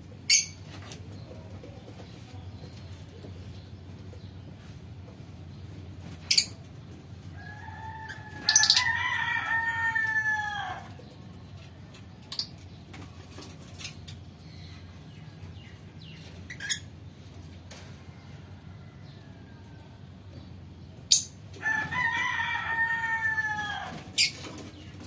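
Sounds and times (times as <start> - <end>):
lovebirds chirping: 0.2 - 4.4, 13.8 - 17.2
rooster crowing: 7.4 - 11.0, 21.6 - 24.3.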